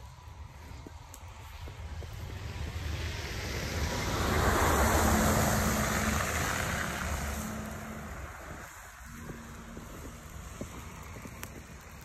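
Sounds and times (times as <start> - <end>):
car driving past: 2.3 - 11.5.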